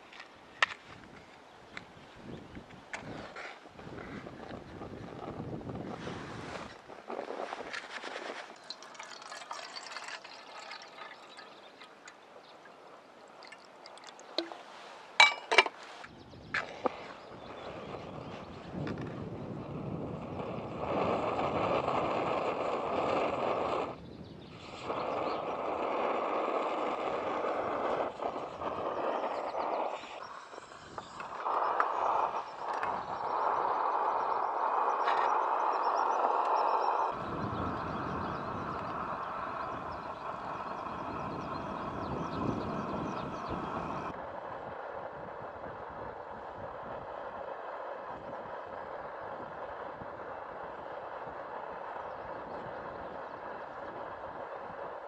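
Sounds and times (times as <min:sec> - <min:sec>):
liquid fuel trickling: 0:07.6 - 0:15.9
faint bird chirps: 0:10.3 - 0:14.8, 0:28.4 - 0:44.0.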